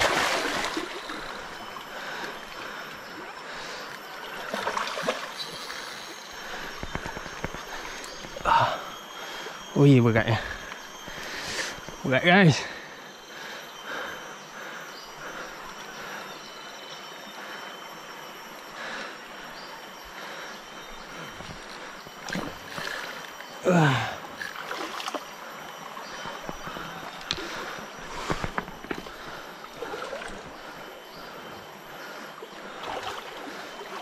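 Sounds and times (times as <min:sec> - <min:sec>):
river water rushing: 0:00.0 - 0:01.5.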